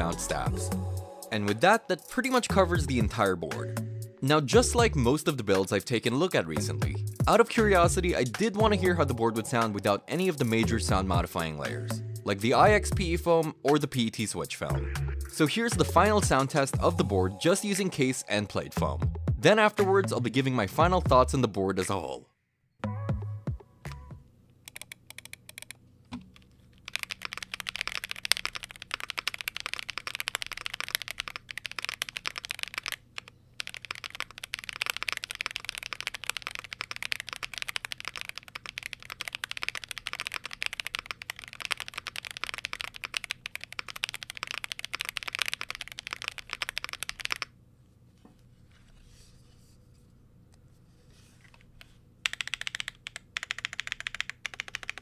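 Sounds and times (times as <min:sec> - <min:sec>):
mechanical keyboard typing: 0:24.7 - 0:47.5, 0:52.2 - 0:55.0.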